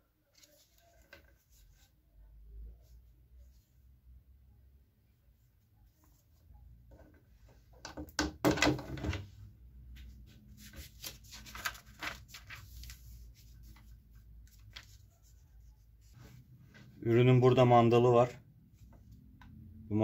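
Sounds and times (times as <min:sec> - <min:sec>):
paper rustling: 0:00.3 - 0:01.9, 0:10.3 - 0:16.9.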